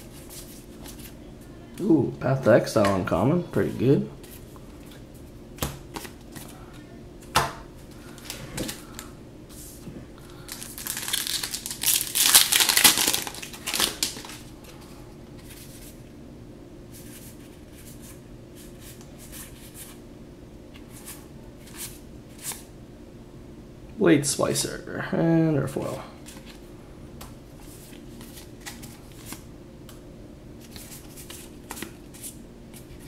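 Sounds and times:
foil wrapper crinkling and tearing: 10.4s - 14.4s
cards being handled: 10.5s - 14.8s, 26.2s - 26.6s, 27.2s - 29.4s, 30.6s - 33.0s.

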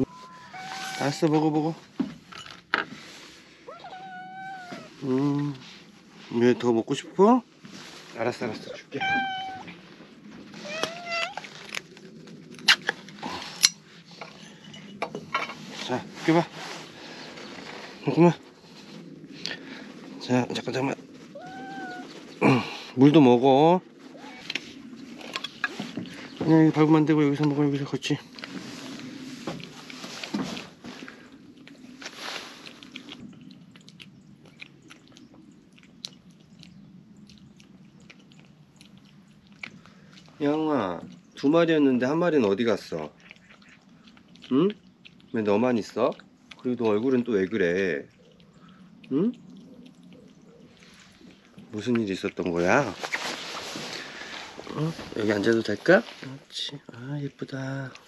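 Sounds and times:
cat meowing: 0.0s - 1.2s, 3.7s - 5.0s, 8.8s - 9.8s, 10.6s - 11.5s, 21.3s - 22.2s, 24.1s - 24.6s
cat chewing and smacking: 28.5s - 41.4s, 42.3s - 52.8s.

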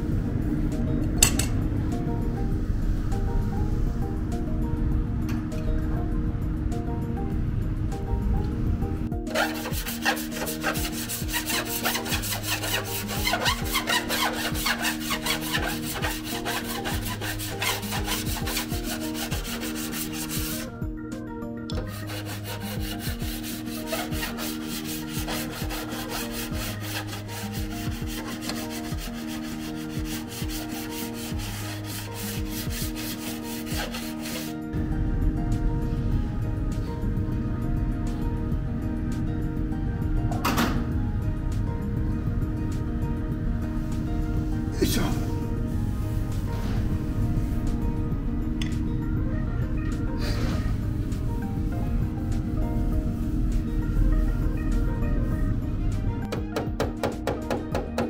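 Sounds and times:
background music: 0.0s - 58.0s
sanding block rubbing on metal: 9.3s - 20.7s, 21.8s - 34.6s.

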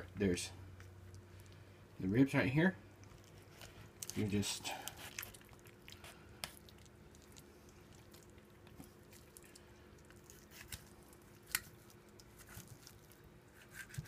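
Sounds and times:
knife cutting raw meat: 13.5s - 14.0s.

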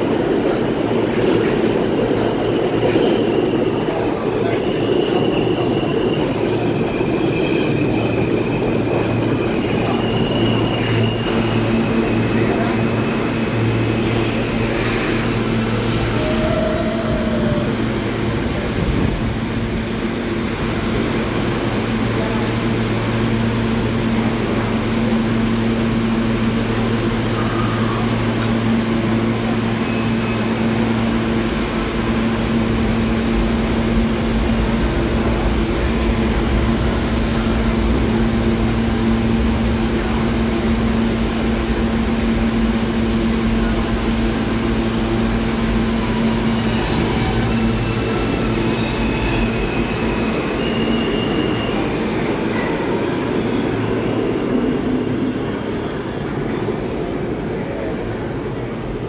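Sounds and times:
subway train humming: 0.0s - 59.0s
train pulling out: 0.0s - 59.0s
high wheel squeals: 4.8s - 17.7s, 29.7s - 31.0s, 46.2s - 52.0s.

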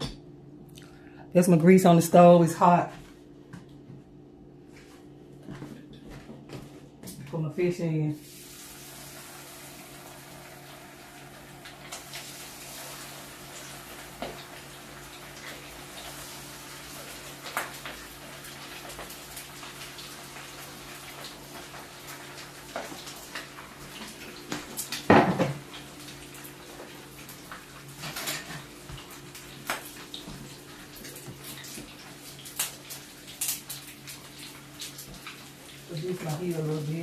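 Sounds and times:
fish frying in hot grease: 8.2s - 37.0s.

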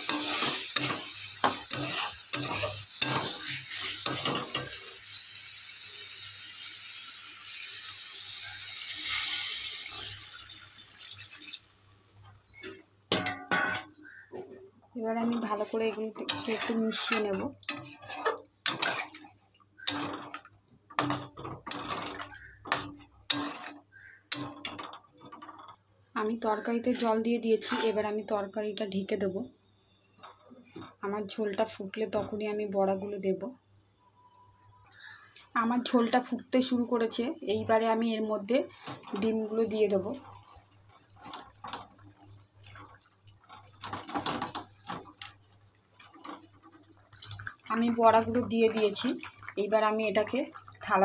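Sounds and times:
spatula scraping a metal pan: 0.0s - 4.8s, 15.2s - 20.4s, 21.0s - 25.7s, 26.9s - 28.0s
curry bubbling at the boil: 0.0s - 13.3s, 38.7s - 51.0s
fritters plopping and splashing: 5.9s - 14.2s, 15.3s - 25.6s, 38.7s - 51.0s.

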